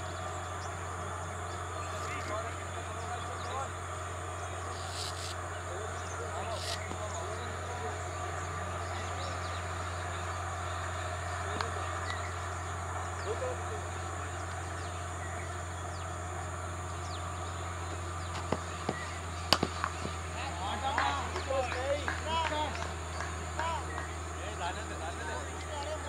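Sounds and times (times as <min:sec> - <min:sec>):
bird chirps: 0:00.0 - 0:20.4
steady low hum: 0:00.0 - 0:26.0
sharp knocks: 0:18.4 - 0:20.2.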